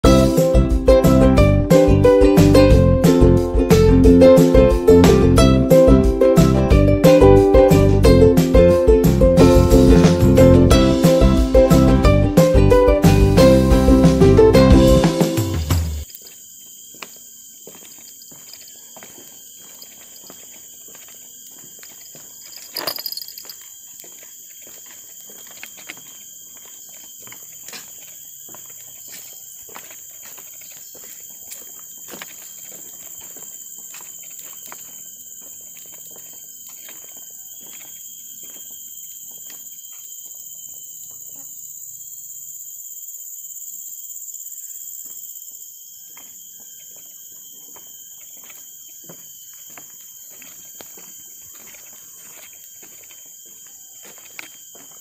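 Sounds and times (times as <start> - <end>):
high-pitched insect chorus: 0.0 - 55.0
footsteps on wooden planks: 15.8 - 41.2, 46.0 - 55.0.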